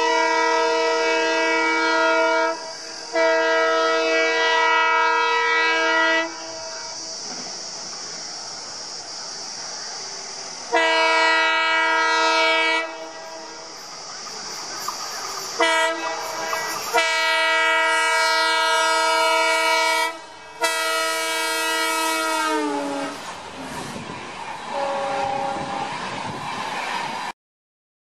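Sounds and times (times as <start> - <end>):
locomotive horn blasts: 0.0 - 6.8, 10.7 - 13.7, 15.6 - 23.2, 24.7 - 26.0
locomotive engine rumble: 2.0 - 27.3.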